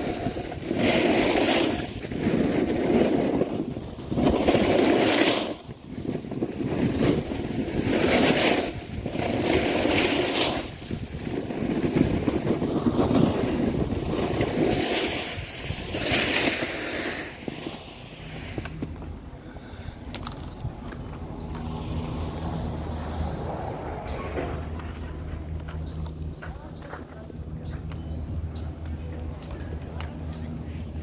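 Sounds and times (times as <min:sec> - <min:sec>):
wind buffeting microphone: 0:00.0 - 0:16.4
snowboard scraping on snow: 0:00.0 - 0:19.8, 0:20.5 - 0:25.4.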